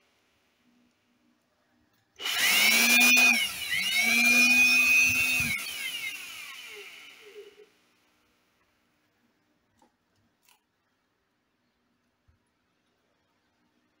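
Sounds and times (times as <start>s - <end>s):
electric blower motor whine: 2.2s - 7.6s.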